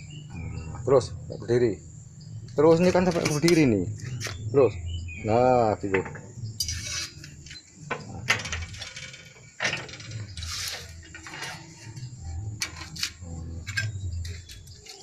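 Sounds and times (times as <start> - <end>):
metal panel scraping and clanking: 8.0 - 14.7.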